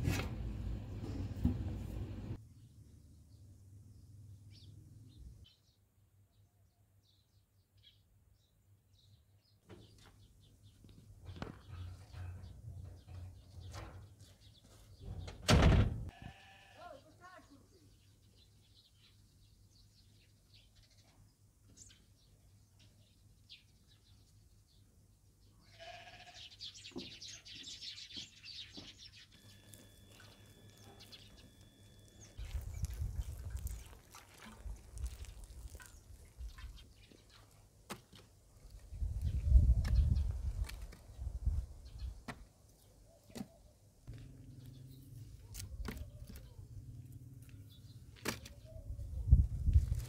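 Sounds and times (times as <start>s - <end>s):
livestock bleating: 16.1s - 17.2s, 25.6s - 26.6s.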